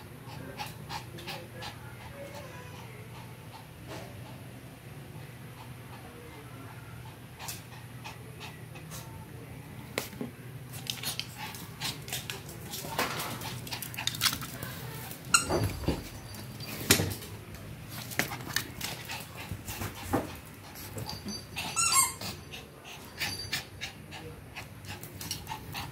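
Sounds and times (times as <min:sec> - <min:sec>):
dog whining and yelping: 0:21.2 - 0:22.5.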